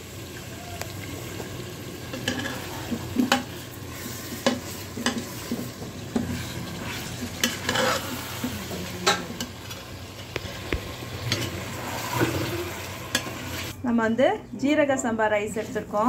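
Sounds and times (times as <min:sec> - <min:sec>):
masala sizzling: 0:00.0 - 0:13.8
metal ladle scraping pan: 0:02.1 - 0:13.7.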